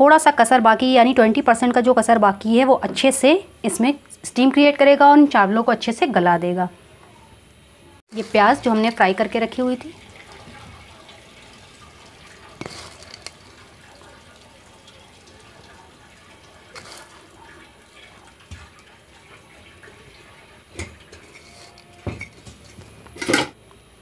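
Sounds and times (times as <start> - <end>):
faint steady hiss: 6.7 - 24.0.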